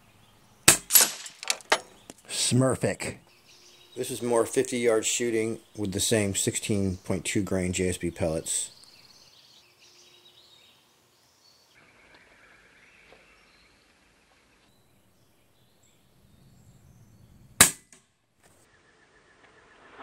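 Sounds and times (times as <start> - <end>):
air rifle shot crack: 0.7 - 1.4, 17.6 - 17.9.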